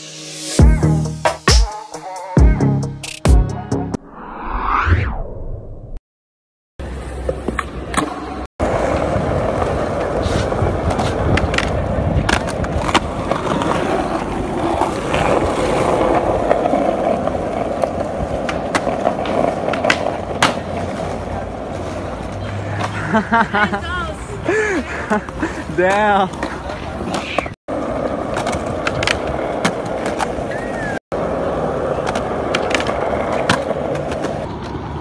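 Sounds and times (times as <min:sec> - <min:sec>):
skateboard wheels rolling on concrete: 0:06.8 - 0:35.0
skateboard clacks: 0:07.2 - 0:23.0, 0:25.2 - 0:35.0.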